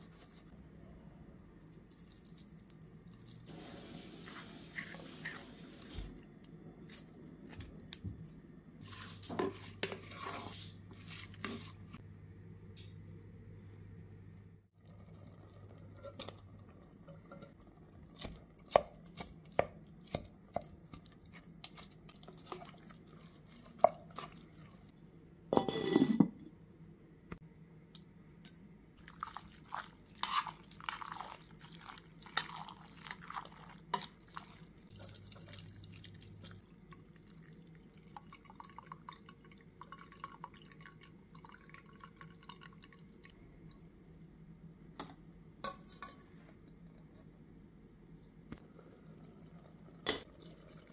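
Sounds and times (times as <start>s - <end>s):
spoon stirring pasta in metal pot: 29.0s - 35.8s.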